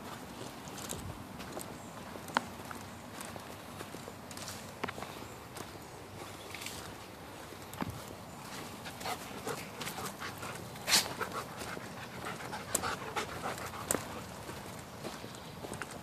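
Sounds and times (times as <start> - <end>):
footsteps on dirt trail: 0.0 - 16.0
panting breaths: 8.6 - 14.8.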